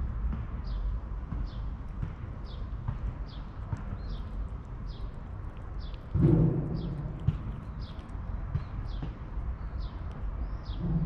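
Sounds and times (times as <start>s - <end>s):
cat chewing: 1.8s - 10.3s
low rumble: 3.7s - 11.0s.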